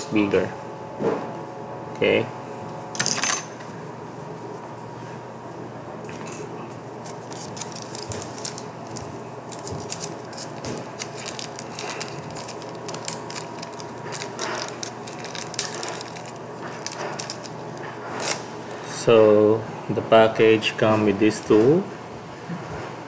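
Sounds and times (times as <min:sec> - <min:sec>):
steady low hum: 0:00.0 - 0:23.0
small clicks and crinkling: 0:07.3 - 0:17.6.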